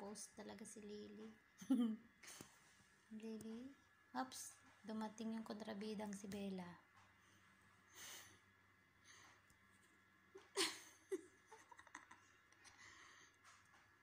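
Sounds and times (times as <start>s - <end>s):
soft breathy sounds: 12.6s - 13.6s.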